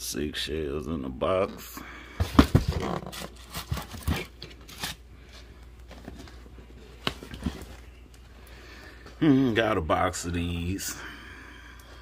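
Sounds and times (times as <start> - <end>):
cardboard boxes knocking and rustling: 2.2 - 4.4.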